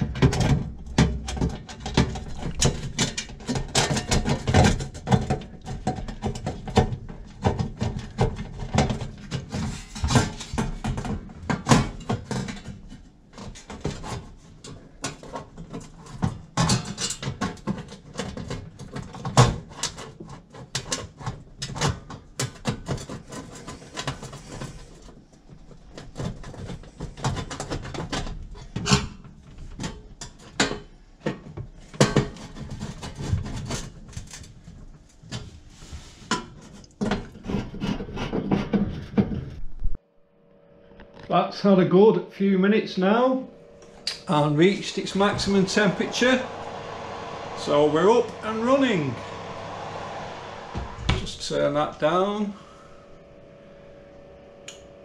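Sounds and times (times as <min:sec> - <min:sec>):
sheet metal knocks and scrapes: 0:00.0 - 0:14.4, 0:35.9 - 0:39.6.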